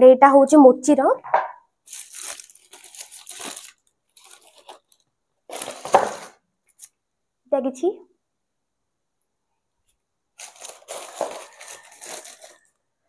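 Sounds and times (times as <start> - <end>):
tissue paper rustling: 1.8 - 6.9, 10.4 - 12.7.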